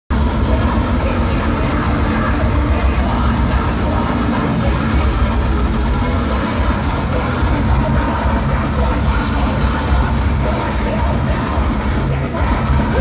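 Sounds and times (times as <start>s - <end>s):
metal band playing live: 0.1s - 13.0s.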